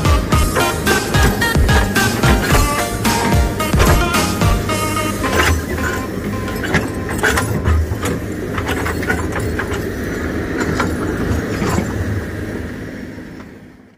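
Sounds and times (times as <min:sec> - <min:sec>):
diesel engine running: 0:00.0 - 0:13.9
metallic clanks and knocks: 0:00.3 - 0:10.0.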